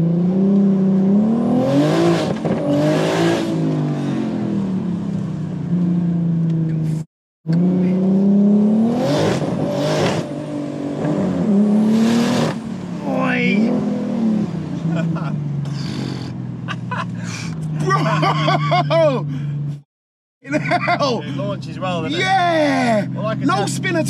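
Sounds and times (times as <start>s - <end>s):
car engine accelerating: 0.0s - 19.8s.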